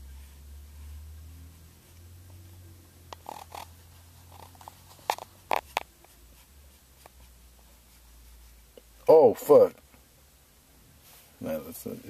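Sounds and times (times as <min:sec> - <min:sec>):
low car hum: 0:00.0 - 0:06.7.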